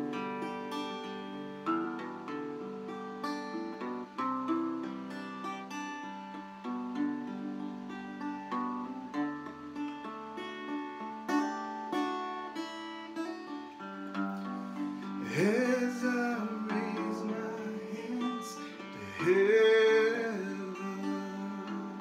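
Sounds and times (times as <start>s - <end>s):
guitar chords: 0.0s - 22.0s
man singing: 15.2s - 22.0s.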